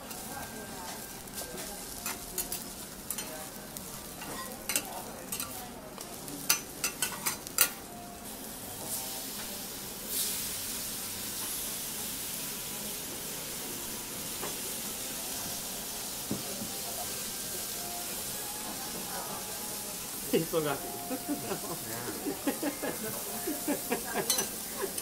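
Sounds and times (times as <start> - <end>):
meat sizzling on hot plate: 0.0 - 25.0
metal spatulas scraping griddle: 21.5 - 25.0.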